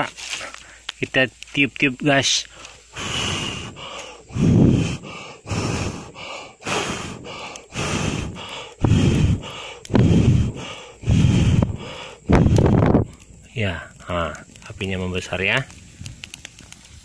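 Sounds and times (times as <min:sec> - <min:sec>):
quick breaths in: 0:02.5 - 0:13.3
person blowing on fire: 0:02.5 - 0:13.4.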